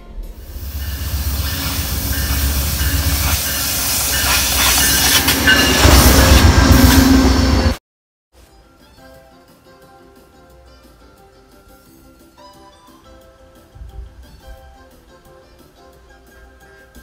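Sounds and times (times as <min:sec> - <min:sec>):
passenger train passing: 0:00.1 - 0:07.8
diesel locomotive rumble: 0:00.3 - 0:07.8
rushing wind: 0:00.4 - 0:07.8.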